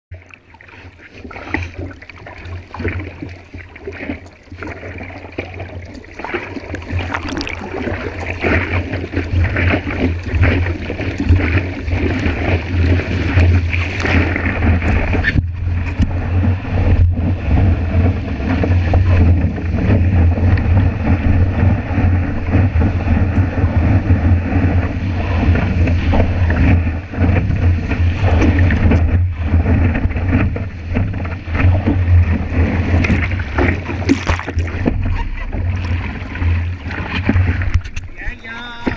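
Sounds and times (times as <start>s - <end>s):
paddling splashes: 0.1s - 38.9s
seawater splashing and rushing: 0.1s - 38.9s
wind buffeting microphone: 6.2s - 38.9s.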